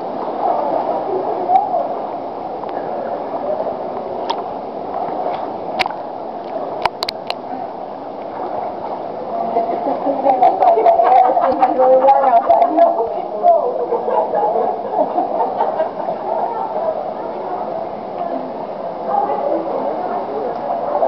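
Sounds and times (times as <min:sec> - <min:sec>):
water sloshing and gurgling: 0:00.0 - 0:21.0.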